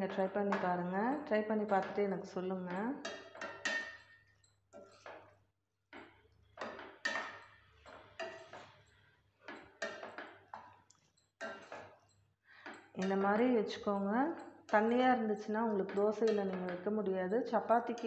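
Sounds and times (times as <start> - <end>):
metal ladle scraping a steel pan: 2.7 - 5.3, 6.0 - 17.0.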